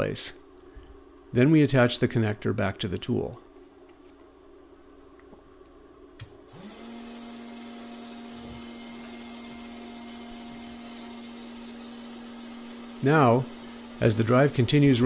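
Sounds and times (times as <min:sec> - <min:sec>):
motor and gearbox whining: 0:06.5 - 0:15.0.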